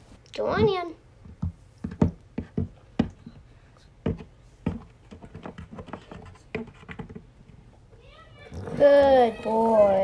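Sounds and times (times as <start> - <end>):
toy hooves tapping on hard floor: 0.5 - 3.4.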